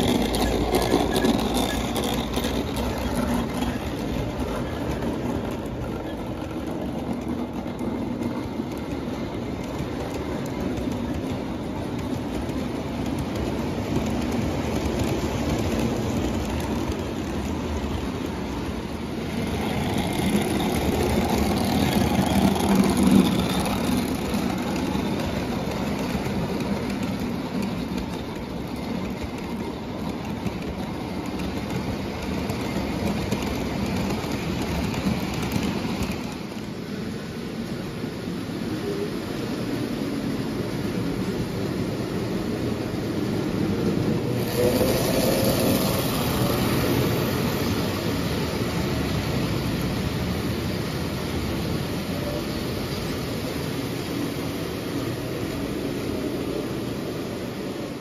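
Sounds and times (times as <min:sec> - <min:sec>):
metal wheels rumbling on rails: 0:00.0 - 0:58.0
toy train motor hum: 0:44.4 - 0:46.8.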